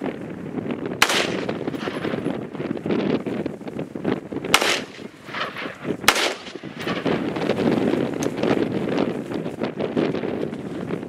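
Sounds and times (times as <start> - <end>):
wind buffeting microphone: 0.0 - 11.0
rifle shots: 1.0 - 2.2, 4.5 - 7.4.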